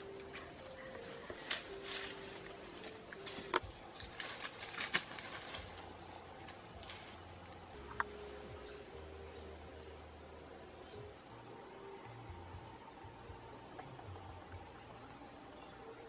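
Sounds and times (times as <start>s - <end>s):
leaves crackling: 0.0s - 9.9s
twigs snapping: 0.6s - 8.1s
bird chirps: 7.8s - 9.6s.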